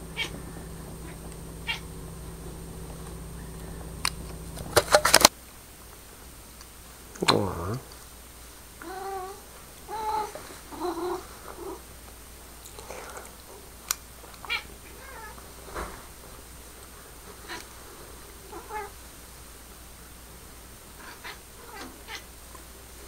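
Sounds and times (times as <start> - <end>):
cat meowing and chirping: 0.1 - 0.4, 1.0 - 1.9
sharp click: 4.0 - 5.3.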